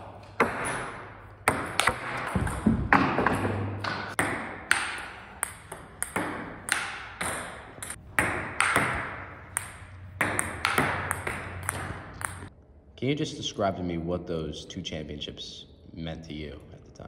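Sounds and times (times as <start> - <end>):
table tennis ball hits: 0.0 - 12.5.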